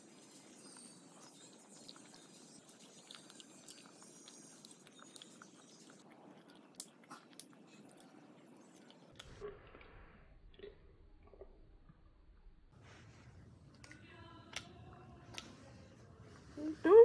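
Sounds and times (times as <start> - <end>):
chewing crunchy wafer: 0.4 - 9.7.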